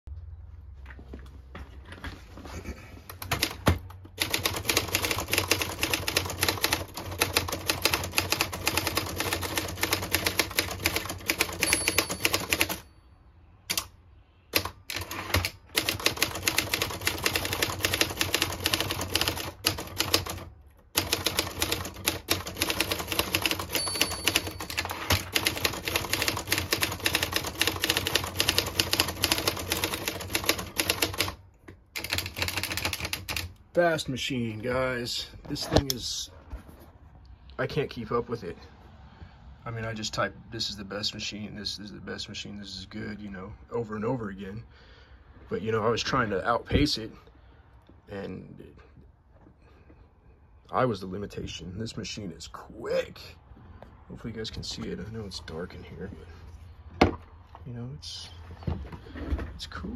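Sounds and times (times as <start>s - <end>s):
typewriter keystrokes clattering: 3.2s - 12.8s, 14.6s - 31.4s.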